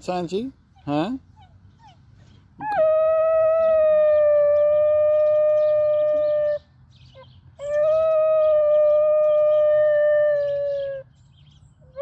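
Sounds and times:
dog howling: 2.6 - 6.6, 7.6 - 11.0.

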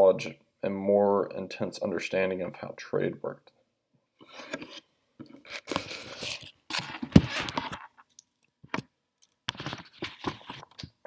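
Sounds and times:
rustling and scraping handling noise: 4.2 - 8.1, 9.4 - 11.0.

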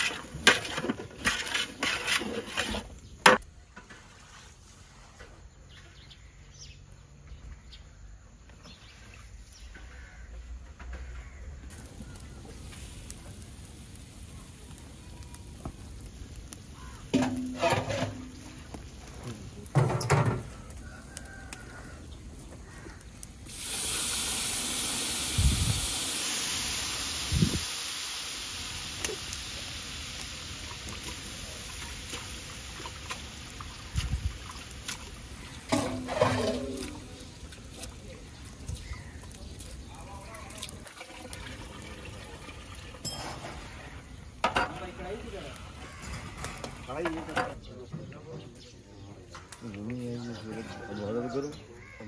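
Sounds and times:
water pouring into metal pot: 0.0 - 2.9, 16.7 - 18.8, 23.4 - 47.5
metal ladle scraping a pot: 0.0 - 3.1, 17.1 - 18.6, 35.6 - 37.2
faint outdoor ambience: 0.0 - 52.0.

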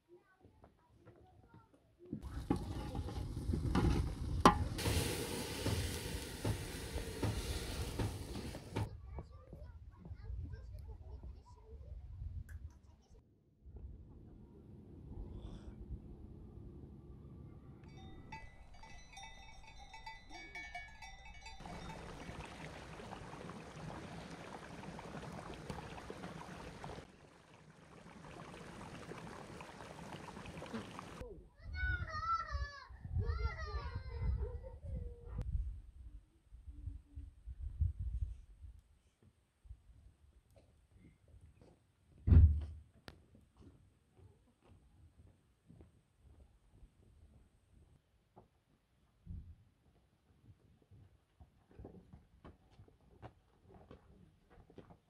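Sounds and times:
stream running over stones: 2.2 - 8.9, 21.5 - 31.2
wood fire crackling and popping: 2.5 - 8.9, 21.6 - 31.2
steady hiss: 4.6 - 8.9
clinking bell-like tones: 17.8 - 22.3.

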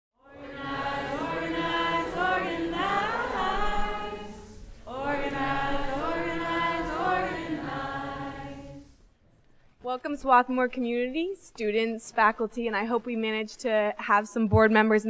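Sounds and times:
group of people singing: 0.2 - 9.0.

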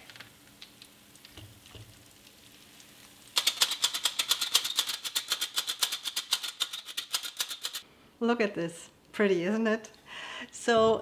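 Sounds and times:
metal sugar shaker rattling: 3.4 - 7.8.

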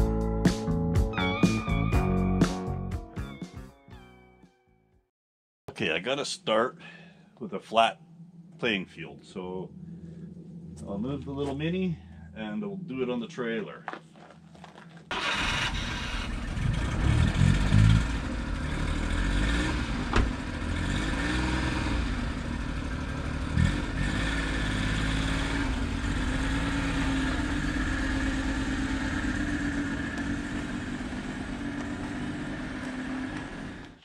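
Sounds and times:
small truck engine revving: 15.1 - 34.0.

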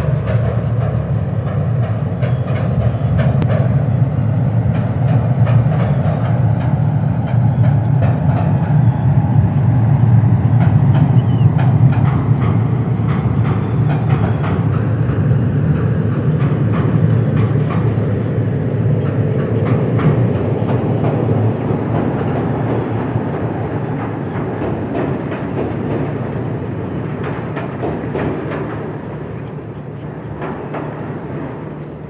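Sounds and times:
train rumbling over a bridge: 0.0 - 32.0
wheels clacking on rails: 0.0 - 32.0.

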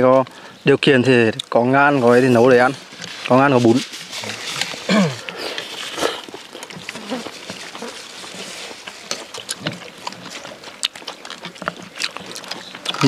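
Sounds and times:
slurping noodles: 3.7 - 10.4.

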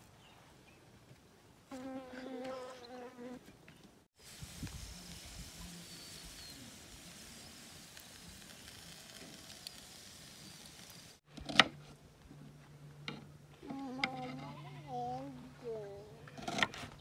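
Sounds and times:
meat sizzling over charcoal: 4.2 - 11.3.

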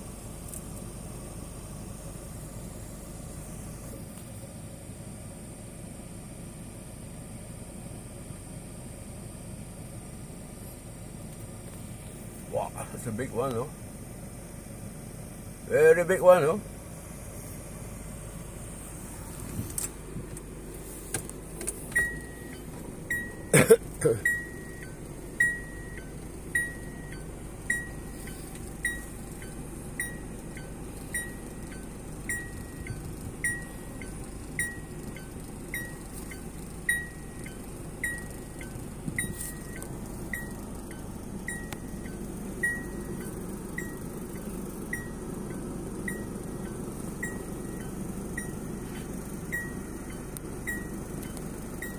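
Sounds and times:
low car hum: 0.0 - 51.9
car warning chime beeping: 20.0 - 51.9.

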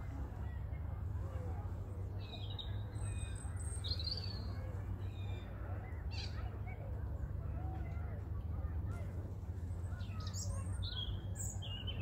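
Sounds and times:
small birds chirping: 9.9 - 12.0.

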